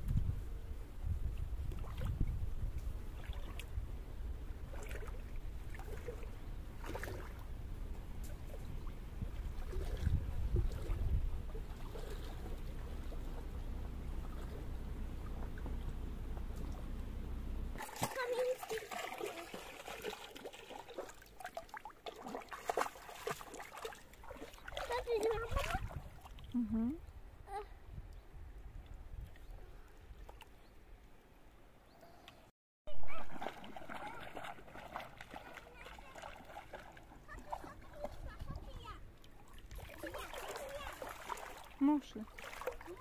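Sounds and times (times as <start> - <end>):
wind rumble on microphone: 0.0 - 17.8, 25.2 - 30.2
person wading and splashing in water: 3.1 - 3.8, 4.6 - 7.6, 8.2 - 16.9, 17.8 - 26.6, 33.0 - 43.0.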